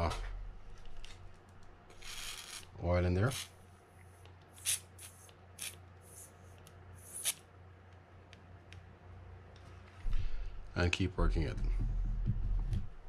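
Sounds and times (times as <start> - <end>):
aerosol can spraying hiss: 4.6 - 6.3, 7.0 - 7.4.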